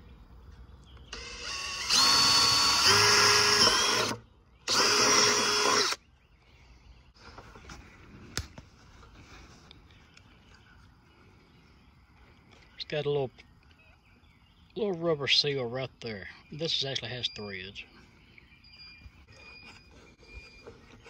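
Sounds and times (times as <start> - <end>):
cordless drill whining: 1.1 - 6.0.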